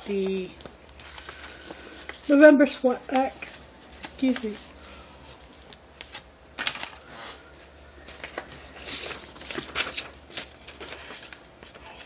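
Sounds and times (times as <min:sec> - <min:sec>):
plastic bags crinkling: 0:00.0 - 0:02.4, 0:07.8 - 0:12.0.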